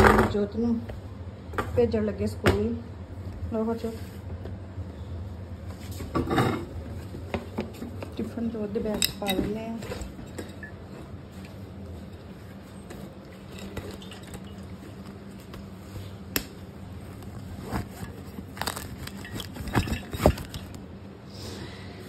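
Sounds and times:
backpack rustling: 17.0 - 20.7.

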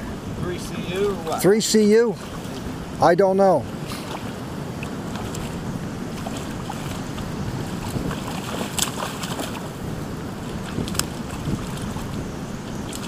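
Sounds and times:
shallow creek water flowing: 0.0 - 13.0
wind buffeting microphone: 0.0 - 13.0.

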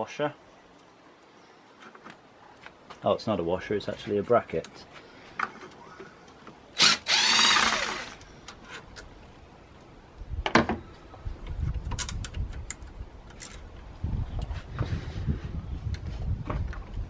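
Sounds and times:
power tool spinning out a bolt: 6.8 - 8.2.

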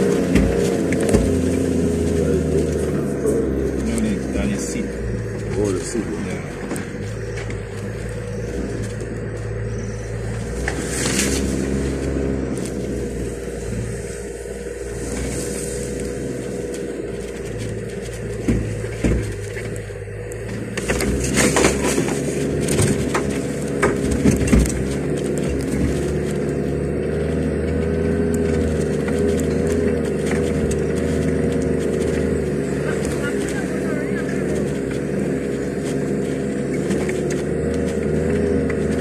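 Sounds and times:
vehicle knocks and rattles: 0.0 - 12.4, 15.2 - 39.0
vehicle engine running: 0.0 - 39.0.

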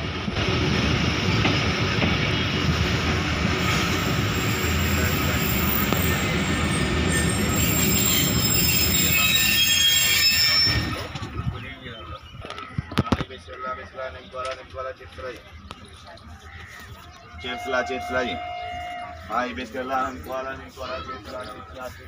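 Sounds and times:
train wheels rumbling on track: 0.0 - 22.0
high-pitched wheel squeal: 3.7 - 11.3.

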